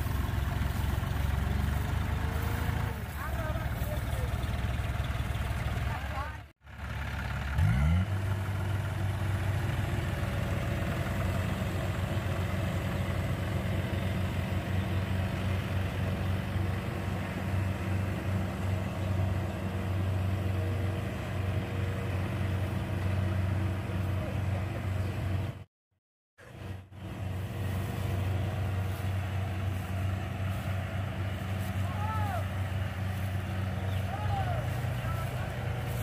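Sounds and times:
engine revving: 0:00.0 - 0:24.7
diesel engines running under load: 0:00.0 - 0:25.7, 0:26.4 - 0:36.0.

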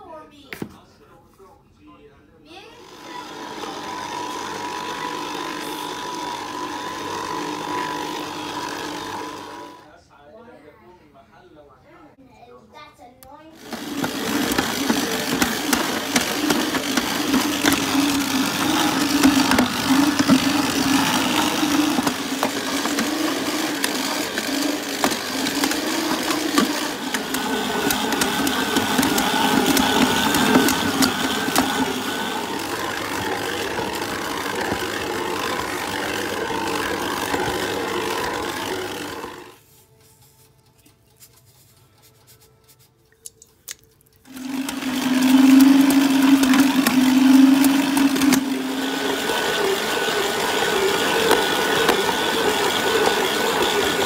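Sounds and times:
stand mixer motor hum: 0:02.8 - 0:09.9, 0:13.6 - 0:39.6, 0:44.3 - 0:54.0
dough rattling and slapping in bowl: 0:13.7 - 0:39.5.

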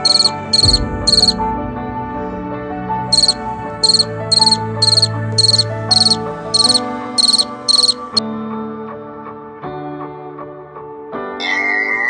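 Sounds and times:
cricket chirping: 0:00.0 - 0:01.4, 0:03.1 - 0:08.2
soft background music: 0:00.0 - 0:12.0.

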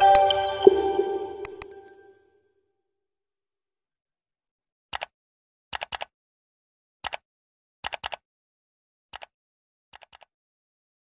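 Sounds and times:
mouse clicks: 0:07.0 - 0:07.2, 0:09.1 - 0:09.3, 0:10.0 - 0:10.3.

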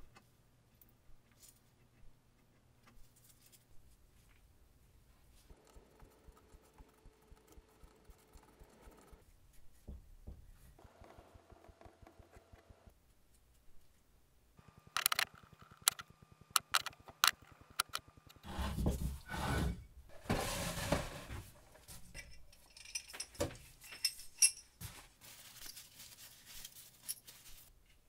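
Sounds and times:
metal parts clinking: 0:22.1 - 0:24.8.

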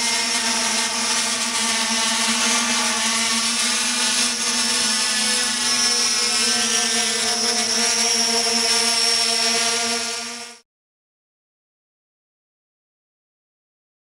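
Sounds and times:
drone propellers humming: 0:00.0 - 0:10.6.

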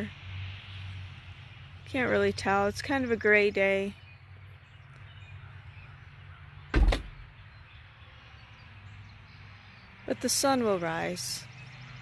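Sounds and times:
loud low thump: 0:06.7 - 0:07.3.

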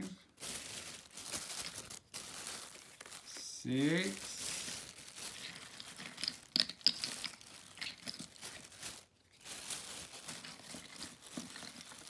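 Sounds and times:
plastic bag crinkling: 0:00.0 - 0:12.0
plastic bottle caps clicking: 0:05.5 - 0:08.3.

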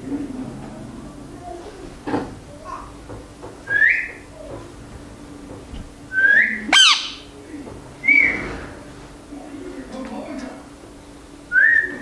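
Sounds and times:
parakeet whistling: 0:03.7 - 0:04.2, 0:06.1 - 0:07.3, 0:11.5 - 0:12.0.

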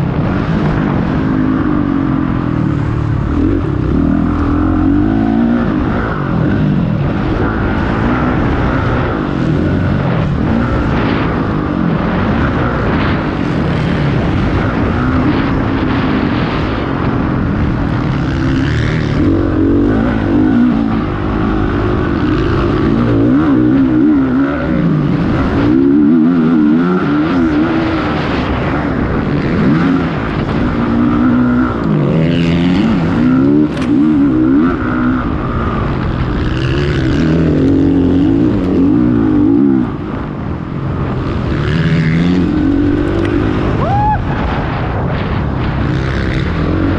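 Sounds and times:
motocross engines revving: 0:00.0 - 0:46.9.

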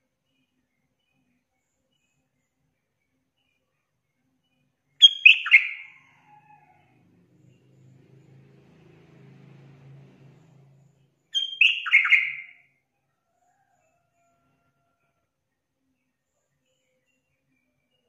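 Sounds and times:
bird calling in quick notes: 0:11.4 - 0:12.6.

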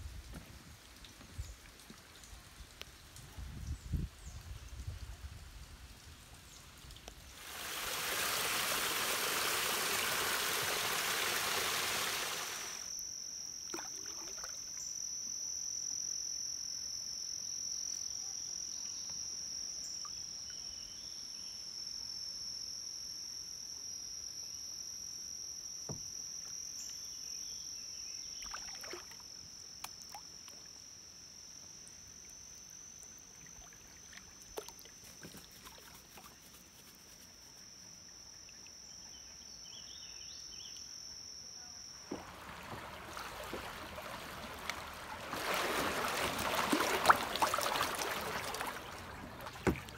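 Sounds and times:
insects droning high-pitched: 0:07.1 - 0:49.9
loud rushing hiss: 0:07.4 - 0:12.8
faint water drips: 0:31.9 - 0:36.3, 0:42.1 - 0:49.9
kayak paddle knocks: 0:42.1 - 0:49.9.

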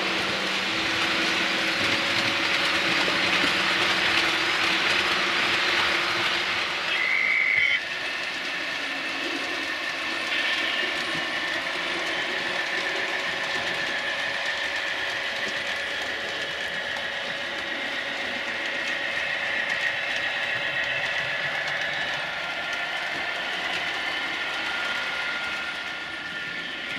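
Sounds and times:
model train wheels clattering: 0:00.0 - 0:26.9.

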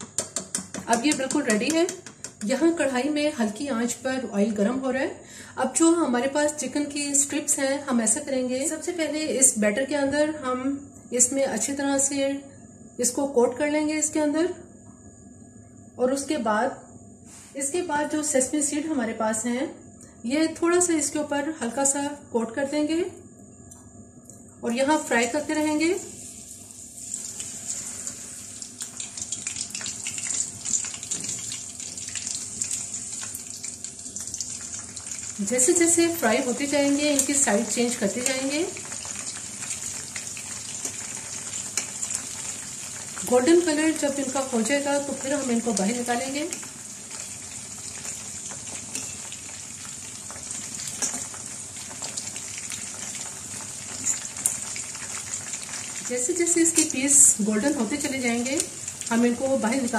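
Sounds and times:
chicken deep-frying in oil: 0:25.2 - 0:59.9.

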